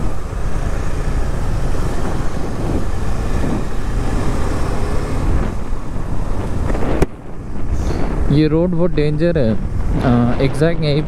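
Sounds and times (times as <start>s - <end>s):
vehicle rumble on road: 0.0s - 11.0s
wind on microphone: 1.4s - 8.5s.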